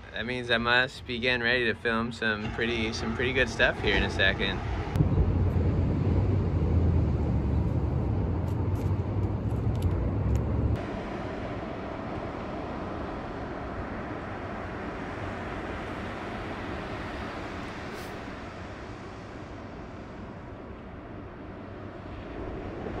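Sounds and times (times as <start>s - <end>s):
wind buffeting microphone: 0.0s - 23.0s
wind rushing: 1.2s - 23.0s.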